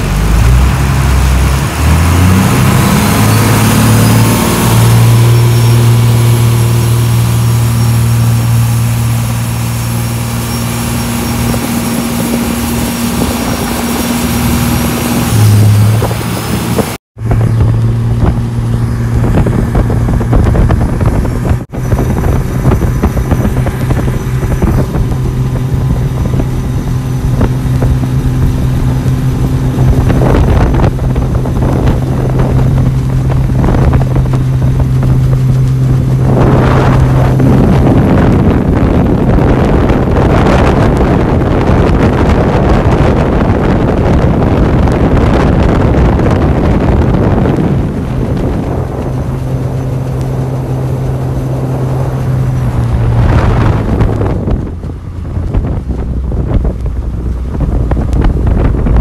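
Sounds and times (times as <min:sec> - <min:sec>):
speedboat engine drone: 0:00.0 - 0:59.0
water rushing past hull: 0:00.0 - 0:59.0
wind buffeting microphone: 0:00.0 - 0:59.0.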